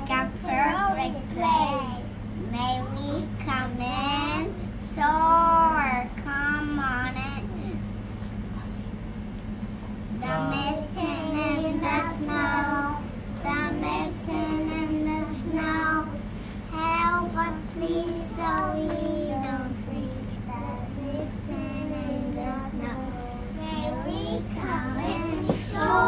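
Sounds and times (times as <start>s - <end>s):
young children singing: 10.2s - 26.0s.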